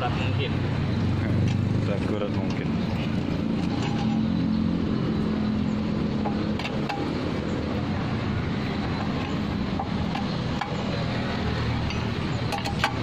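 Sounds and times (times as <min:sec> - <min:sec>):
lug wrench tightening wheel nuts: 0:02.4 - 0:04.4, 0:06.0 - 0:07.8, 0:08.4 - 0:13.0.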